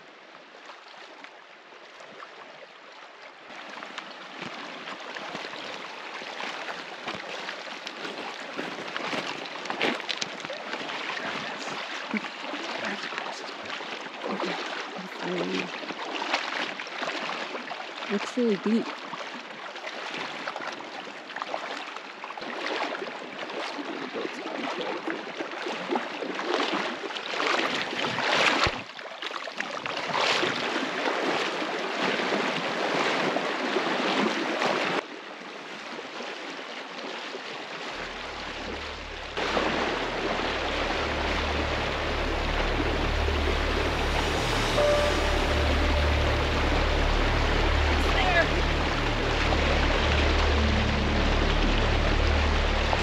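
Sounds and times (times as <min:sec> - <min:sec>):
river water rushing and splashing: 0:00.0 - 0:53.0
low steady rumble: 0:37.9 - 0:53.0.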